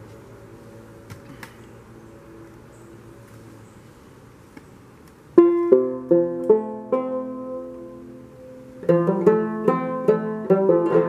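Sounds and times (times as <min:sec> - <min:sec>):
banjo plucked: 0:05.4 - 0:11.0.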